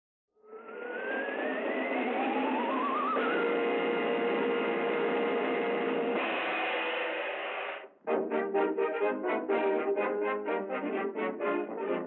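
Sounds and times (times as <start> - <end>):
rising pitch slides: 0.5 - 6.6
orchestral cartoon title music: 8.0 - 12.0.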